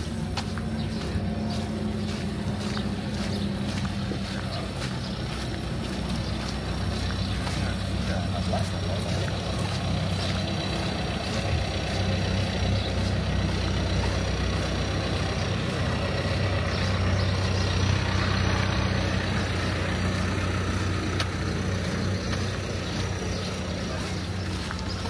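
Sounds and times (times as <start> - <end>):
large engine idling: 0.0 - 25.0.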